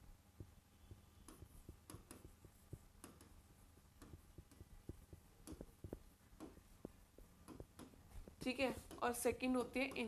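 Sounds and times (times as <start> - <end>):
stylus tapping on touchscreen: 0.4 - 10.0.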